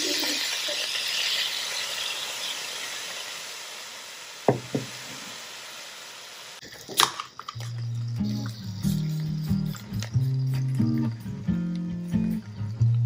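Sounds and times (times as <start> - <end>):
sauce sizzling in skillet: 0.0 - 13.0
bottles knocking on wooden table: 4.5 - 5.0
beer can opening: 6.6 - 10.2.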